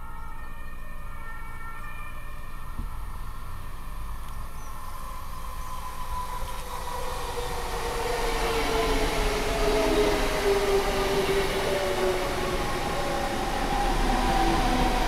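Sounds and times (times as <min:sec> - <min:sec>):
electric train motor whine: 0:01.2 - 0:15.0.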